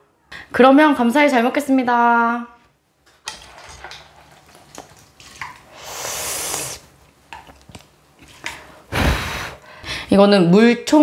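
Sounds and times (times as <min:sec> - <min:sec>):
wet hissing slurp: 0:05.6 - 0:06.9.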